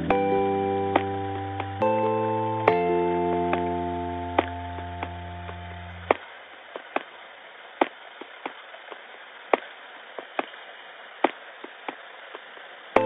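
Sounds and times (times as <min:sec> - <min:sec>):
held music chord: 0:00.0 - 0:06.1
faint hiss: 0:00.0 - 0:13.0
ticking beat of sharp clicks: 0:00.9 - 0:02.0, 0:02.6 - 0:06.2.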